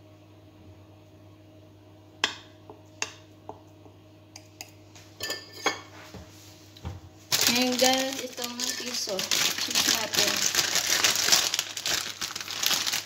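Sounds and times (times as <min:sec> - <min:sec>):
knife clinking on ceramic dish: 0:05.2 - 0:05.9.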